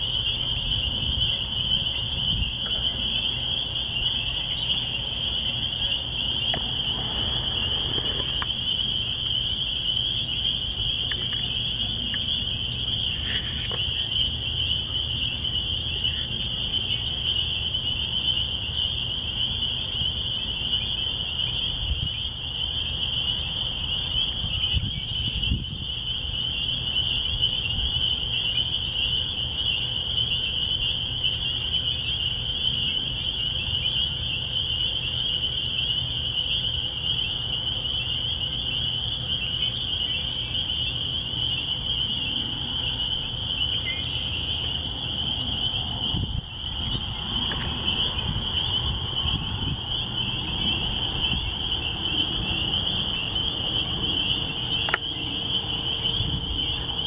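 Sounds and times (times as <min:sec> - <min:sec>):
chorus of peeping frogs: 0:00.0 - 0:57.0
steady low rumble: 0:39.9 - 0:57.0.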